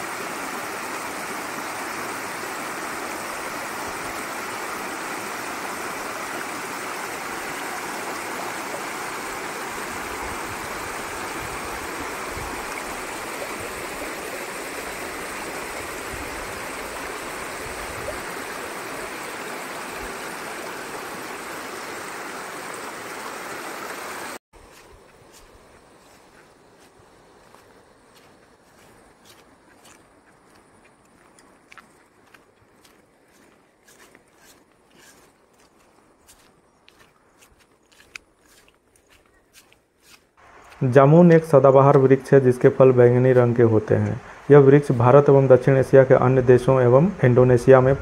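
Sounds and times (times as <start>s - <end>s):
stream rushing over rocks: 0.0s - 24.4s.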